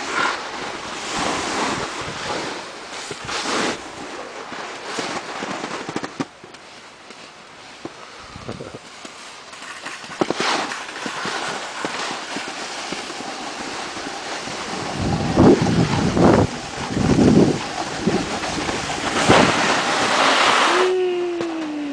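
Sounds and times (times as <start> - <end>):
snowboards scraping over snow: 0.0 - 21.9
wind noise on microphone: 0.8 - 4.0, 8.2 - 8.9, 13.7 - 21.9.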